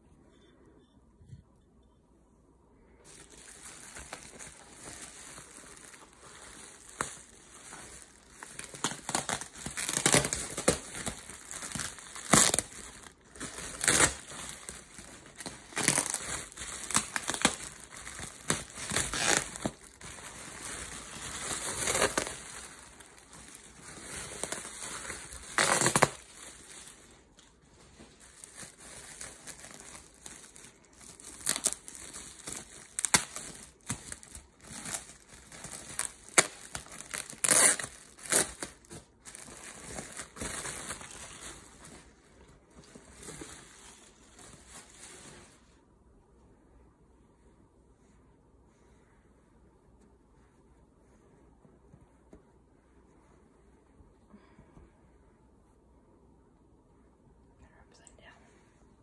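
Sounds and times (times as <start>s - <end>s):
bubble wrap crinkling: 3.0s - 45.9s.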